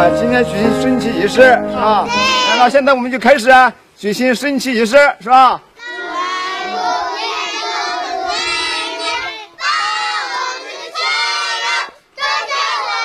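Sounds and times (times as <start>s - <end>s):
children singing together: 2.0s - 2.6s, 5.8s - 13.0s.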